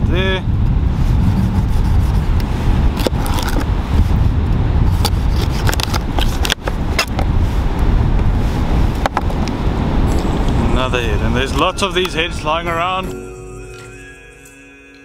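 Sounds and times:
constant low rumble: 0:00.0 - 0:14.5.

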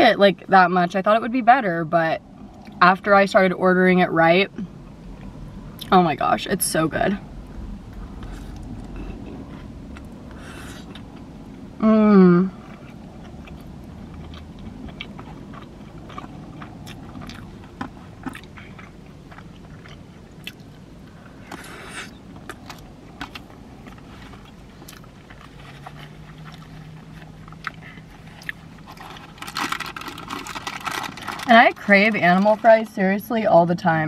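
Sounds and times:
person chewing food: 0:08.2 - 0:11.3, 0:12.6 - 0:31.3.

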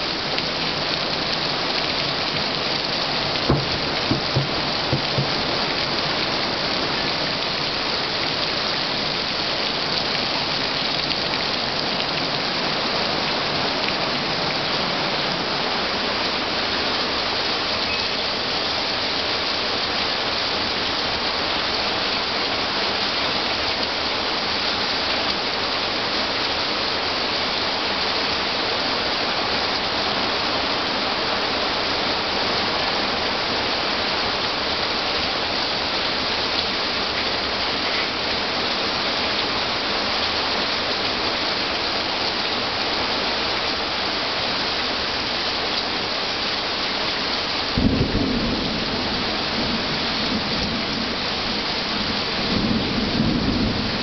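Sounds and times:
heavy rain falling: 0:00.0 - 0:54.0
thunder clap rumbling: 0:03.3 - 0:05.8, 0:47.8 - 0:50.9.

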